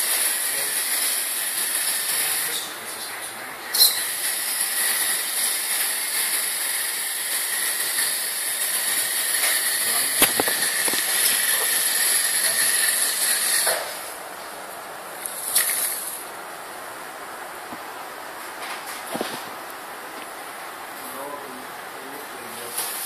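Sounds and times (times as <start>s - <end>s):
toy motor whining: 0.0s - 2.7s, 3.8s - 13.9s.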